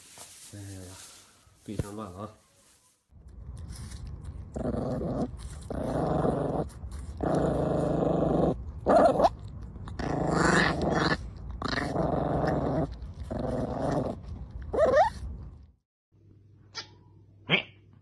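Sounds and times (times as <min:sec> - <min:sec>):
puppy growling: 0:04.2 - 0:15.5
puppy high-pitched cry: 0:14.7 - 0:15.2.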